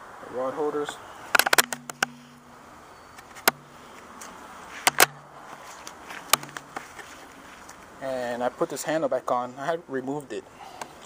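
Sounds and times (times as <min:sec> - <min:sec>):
low hum: 0:01.5 - 0:04.0.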